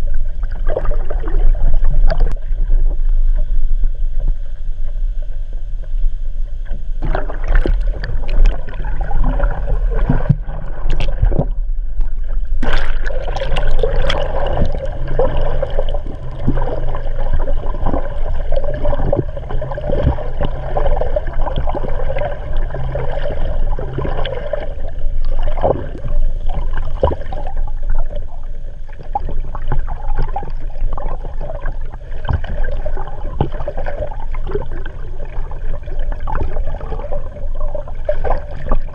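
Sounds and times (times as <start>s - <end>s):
water gurgling underwater: 0.0s - 38.9s
knocks and splashes: 7.0s - 23.2s.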